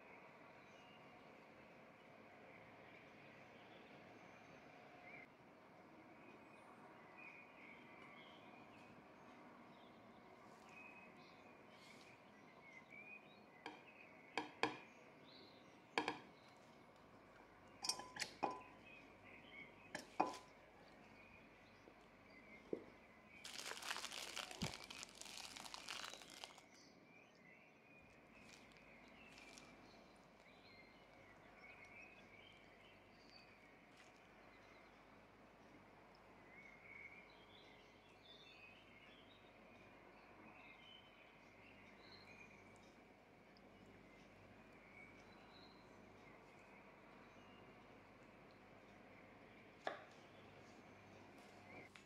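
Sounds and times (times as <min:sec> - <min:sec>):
faint bird chirps: 0:17.6 - 0:52.0
utensils clinking on ceramic plates: 0:17.8 - 0:18.7
plastic crinkling: 0:23.4 - 0:26.8, 0:28.4 - 0:30.4.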